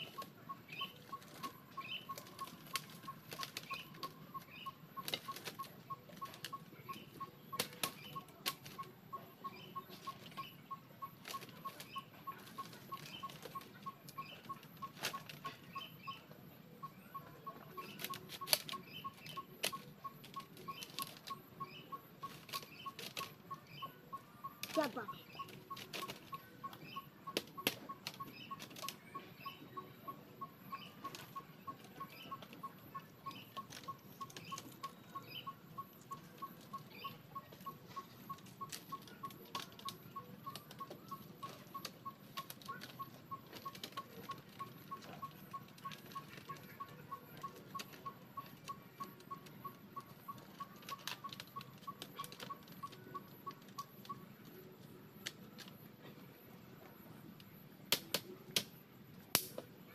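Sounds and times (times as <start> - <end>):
faint chirps: 0.0 - 58.4
sharp clicks: 57.4 - 59.7.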